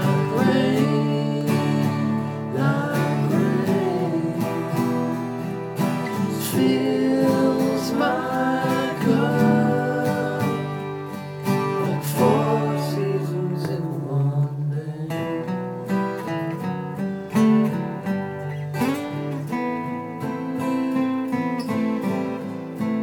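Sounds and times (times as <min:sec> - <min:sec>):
acoustic guitar strumming: 0:00.0 - 0:23.0.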